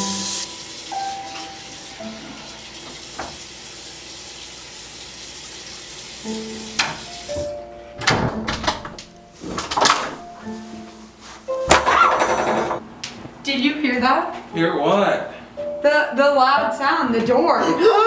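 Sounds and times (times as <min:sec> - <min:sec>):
tap water running into sink: 0:00.4 - 0:07.5.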